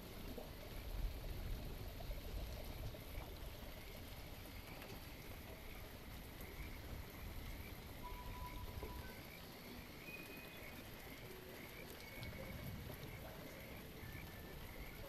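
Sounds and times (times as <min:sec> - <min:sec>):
faint steady tone: 0:00.0 - 0:15.0
water patter and trickle: 0:00.0 - 0:15.0
faint short high tones: 0:08.0 - 0:09.2.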